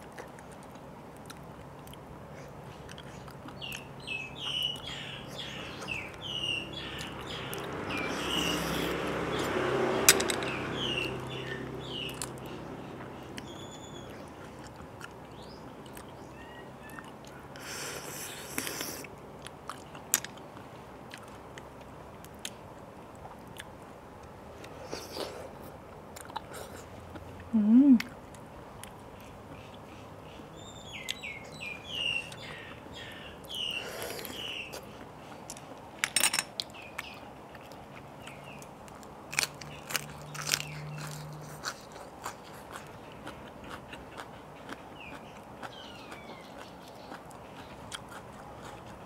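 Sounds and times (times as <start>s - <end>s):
wet chewing and lip smacks: 0.0s - 3.9s, 12.0s - 16.2s, 16.8s - 17.7s, 18.4s - 29.9s, 36.5s - 49.0s
birds chirping faintly: 1.5s - 19.1s, 28.8s - 39.0s, 39.6s - 49.0s
rising and falling hum: 6.0s - 14.0s
crunchy bites: 38.3s - 49.0s.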